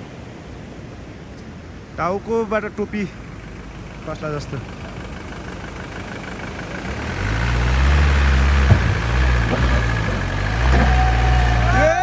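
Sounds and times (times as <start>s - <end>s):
vehicle engine humming: 2.4s - 12.0s.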